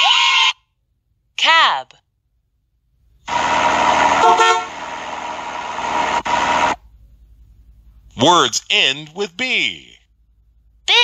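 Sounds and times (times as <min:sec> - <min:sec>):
car and traffic noise: 0:02.2 - 0:10.9
car horn honk: 0:03.3 - 0:06.8.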